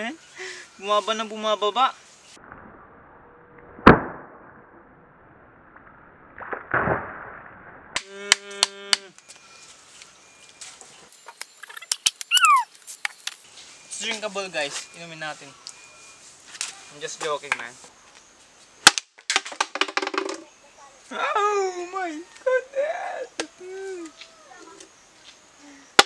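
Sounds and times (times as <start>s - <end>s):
falling squeak: 11.6s - 12.7s.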